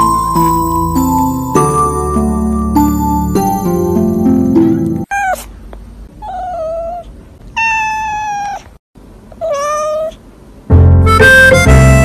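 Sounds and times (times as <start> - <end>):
cat meowing: 5.1 - 5.5, 6.2 - 8.7, 9.4 - 10.2.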